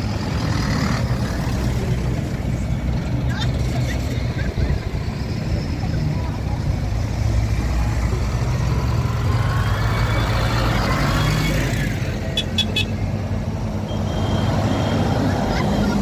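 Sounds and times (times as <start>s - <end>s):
tractor diesel engines running: 0.0s - 16.0s.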